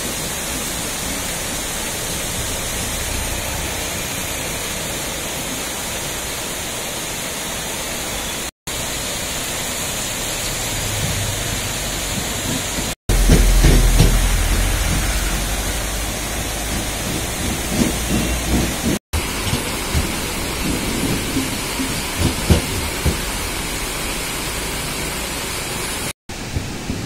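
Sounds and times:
river rushing: 0.0 - 18.1, 18.7 - 26.8
deep rumble: 10.2 - 19.0.

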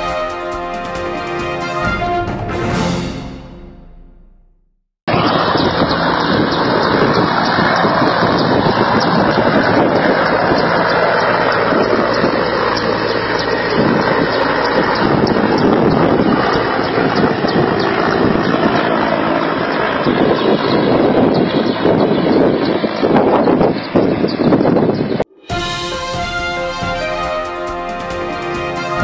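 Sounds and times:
helicopter flying overhead: 0.0 - 2.9, 5.1 - 29.0.

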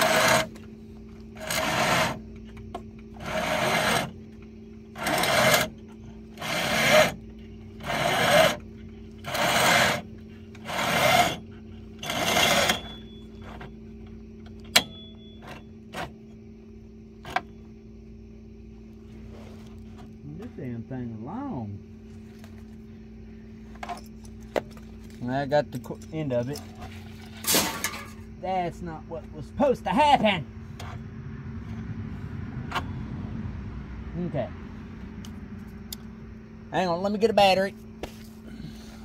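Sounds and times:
winch drum whirring: 0.0 - 20.8.

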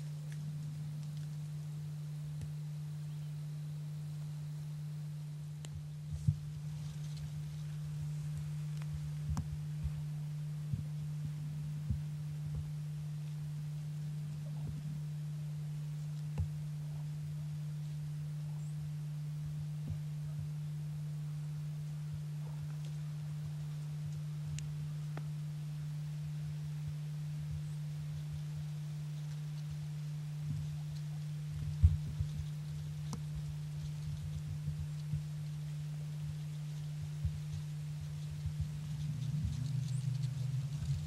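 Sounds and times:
steady low hum: 0.0 - 41.0
faint clicks and ticks: 27.5 - 41.0.

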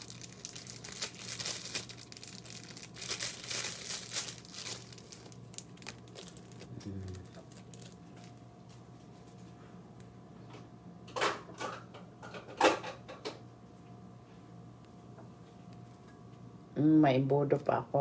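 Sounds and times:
plastic bags crinkling: 0.0 - 8.4.

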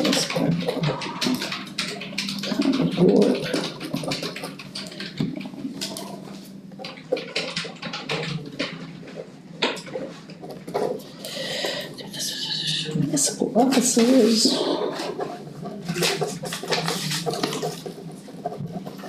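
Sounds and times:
papers rustling: 13.6 - 19.0.

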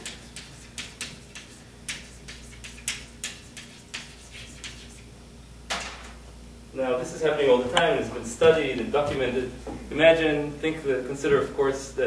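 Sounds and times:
chalk tapping and scraping on blackboard: 0.0 - 5.1.

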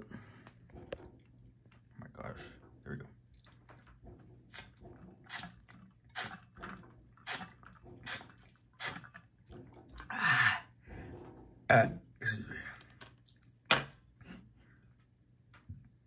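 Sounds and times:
person gulping water: 0.0 - 2.0, 4.5 - 10.5.

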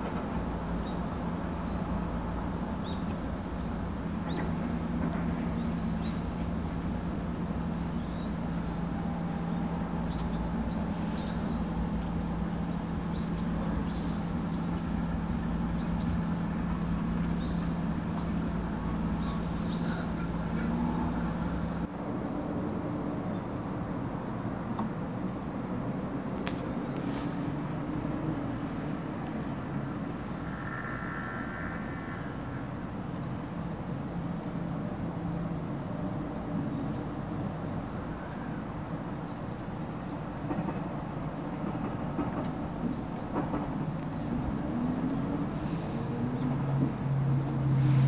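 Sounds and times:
steady low hum: 0.0 - 21.9, 27.5 - 35.6
faint bird chirps: 5.3 - 21.8, 29.6 - 33.8.

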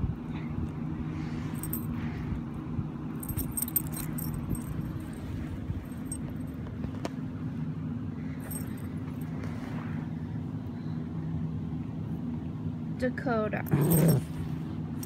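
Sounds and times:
steady low hum: 0.0 - 15.0
collar tags jingling: 1.5 - 2.0, 3.1 - 6.7, 8.4 - 9.4, 13.6 - 15.0.

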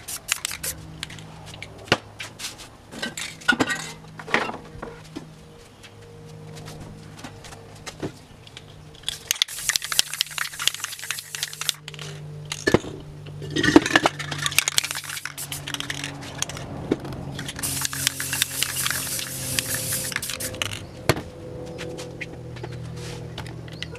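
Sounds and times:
spray paint can hissing: 0.0 - 1.2, 9.2 - 11.9, 14.4 - 16.6, 17.4 - 20.8
spray cans clicking and clinking: 0.0 - 1.8, 9.0 - 12.9, 13.5 - 16.7, 17.4 - 20.8.

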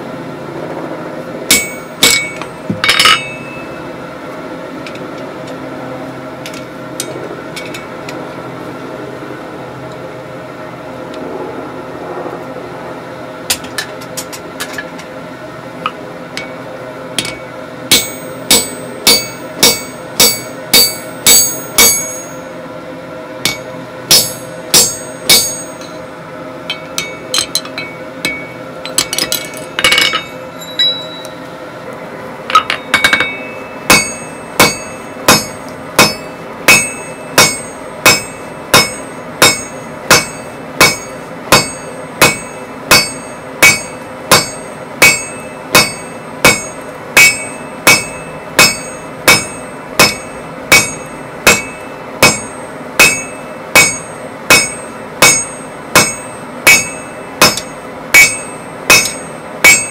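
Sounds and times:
hammer ringing on anvil: 1.5 - 3.9, 17.2 - 22.5, 23.4 - 26.1, 26.7 - 31.4, 32.5 - 59.9
metal clinks of tongs: 26.7 - 31.4.

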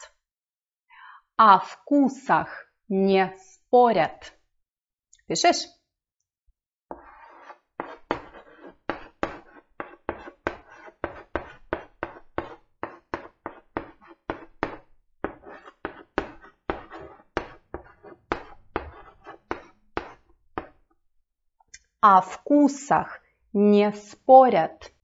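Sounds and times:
chalk scratching on blackboard: 6.9 - 20.8.

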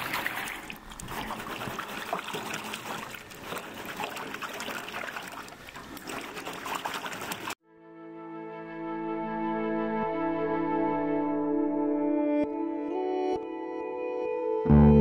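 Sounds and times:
water trickling and splashing: 0.0 - 7.6.

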